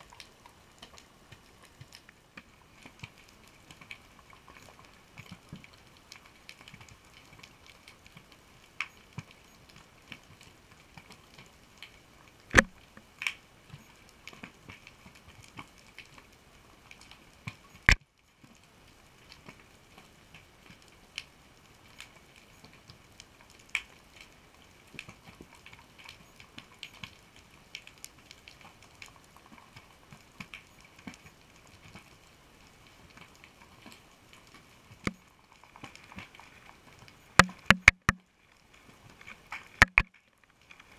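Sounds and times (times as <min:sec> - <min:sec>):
underwater reef crackle: 0:00.0 - 0:40.9
loud sharp clicks: 0:12.6 - 0:12.8, 0:37.4 - 0:38.2, 0:39.8 - 0:40.1.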